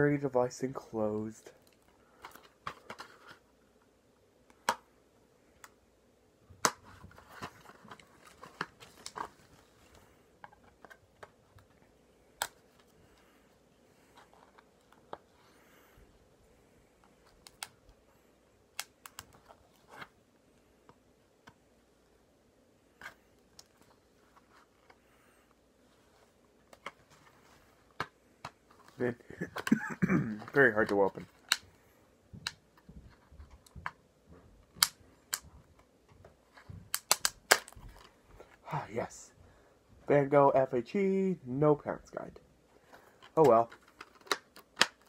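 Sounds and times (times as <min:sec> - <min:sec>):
plastic case clicks and snaps: 0:34.7 - 0:35.4, 0:36.9 - 0:38.1, 0:43.2 - 0:45.0.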